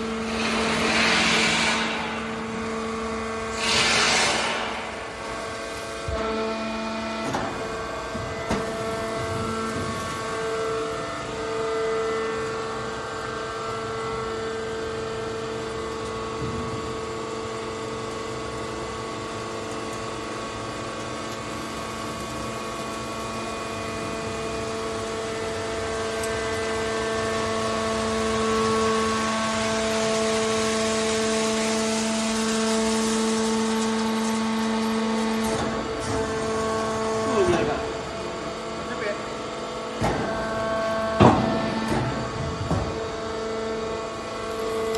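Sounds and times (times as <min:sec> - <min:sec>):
hydraulic power unit humming: 0:00.0 - 0:44.9.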